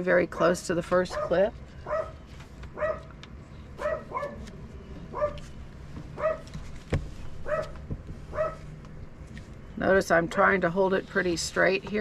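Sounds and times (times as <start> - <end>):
dog barking: 1.1 - 2.2, 2.8 - 3.1, 3.8 - 4.4, 5.1 - 5.4, 6.2 - 6.5, 7.4 - 8.6.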